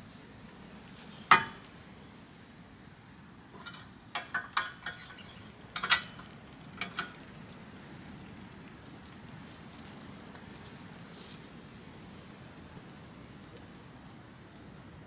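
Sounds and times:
metal clanks and clinks: 0:03.5 - 0:07.2.

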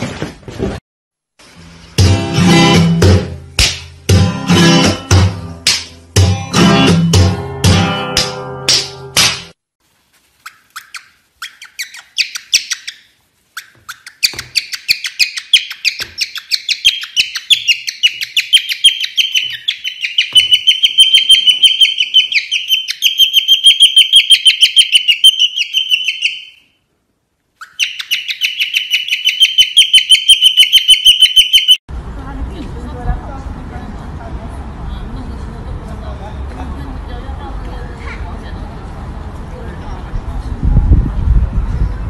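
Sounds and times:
cockatiel chirping: 0:10.4 - 0:26.8, 0:27.6 - 0:31.8.

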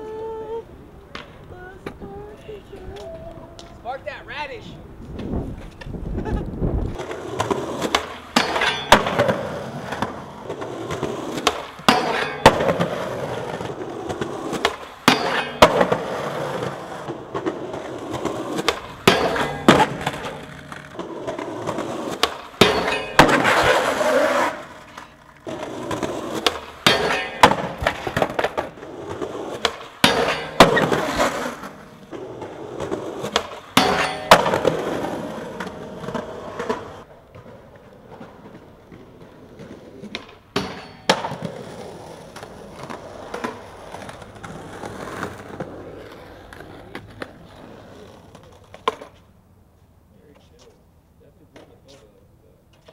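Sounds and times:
skateboard wheels rolling on concrete: 0:00.0 - 0:52.9
skateboard pops and clacks: 0:01.0 - 0:02.0, 0:06.9 - 0:49.3
skateboard clattering away: 0:07.0 - 0:49.2.

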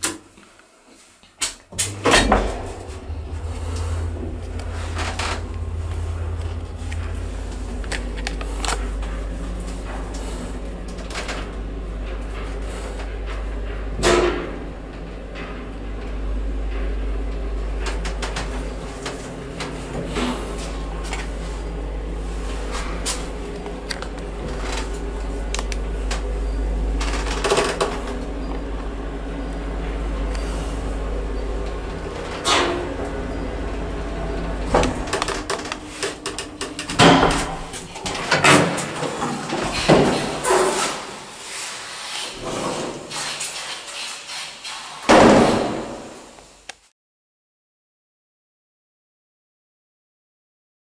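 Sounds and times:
elevator clack: 0:01.7 - 0:41.3
elevator car humming: 0:01.7 - 0:43.3
elevator doors sliding open: 0:01.7 - 0:46.6
elevator clicks: 0:22.6 - 0:40.7
metal door clunks and bangs: 0:34.2 - 0:41.1.

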